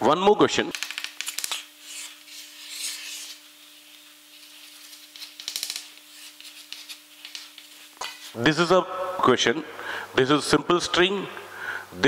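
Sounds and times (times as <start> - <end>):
chalk scratching on chalkboard: 1.2 - 8.4.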